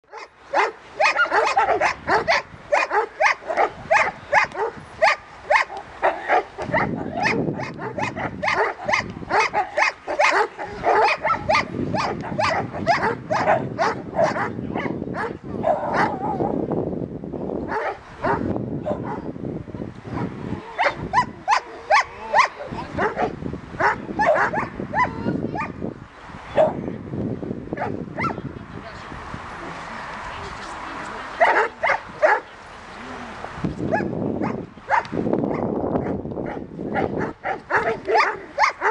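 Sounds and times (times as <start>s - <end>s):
dogs barking: 0.1s - 16.4s, 17.7s - 19.3s, 20.1s - 25.8s, 26.6s - 26.8s, 27.8s - 28.4s, 31.4s - 32.5s, 33.9s - 38.9s.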